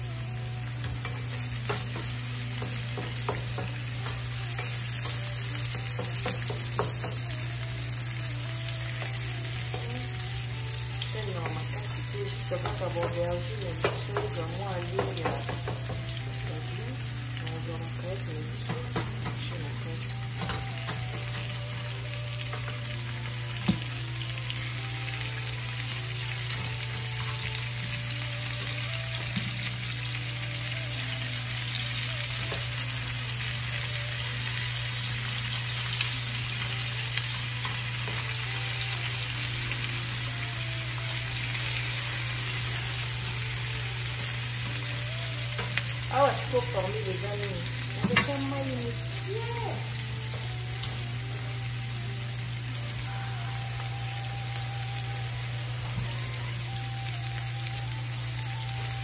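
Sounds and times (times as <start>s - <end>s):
food sizzling in a frying pan: 0.0s - 59.0s
wooden spatula knocking on pan: 0.8s - 5.2s, 5.8s - 7.2s, 12.6s - 13.2s, 13.8s - 16.1s, 18.6s - 19.5s.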